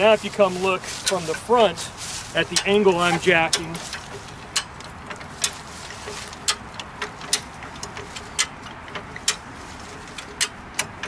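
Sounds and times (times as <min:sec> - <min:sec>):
metal clicks of jack mechanism: 0:06.4 - 0:09.5.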